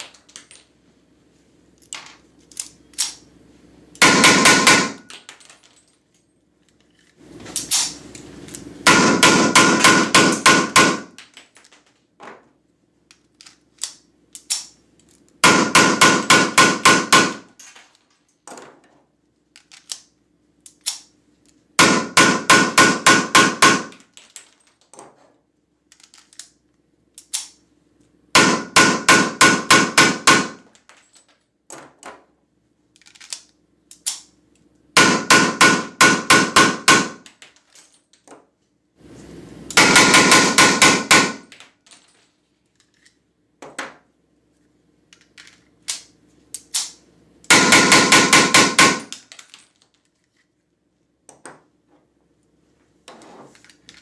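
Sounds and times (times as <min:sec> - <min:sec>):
blank pistol rapid fire: 0:04.0 - 0:05.1, 0:08.8 - 0:11.2, 0:15.4 - 0:17.5, 0:21.8 - 0:24.0, 0:28.4 - 0:30.6, 0:35.0 - 0:37.2, 0:39.8 - 0:41.5, 0:47.5 - 0:49.2.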